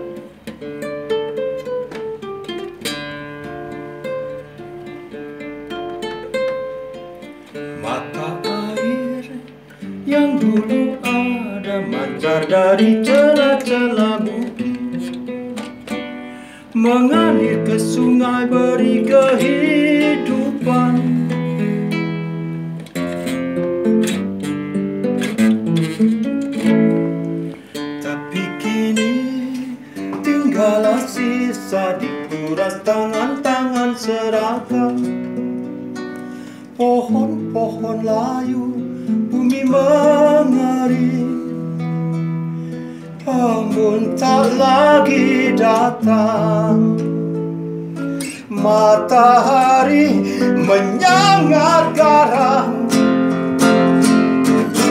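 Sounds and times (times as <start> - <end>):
classical guitar fingerpicked: 0.0 - 54.9
man singing: 7.5 - 15.3, 16.6 - 22.0, 28.0 - 35.2, 36.7 - 42.1, 43.1 - 53.8, 54.4 - 54.9.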